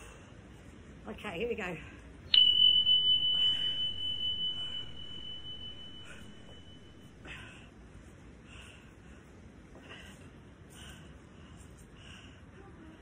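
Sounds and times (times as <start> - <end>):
interval timer chime: 2.3 - 7.2.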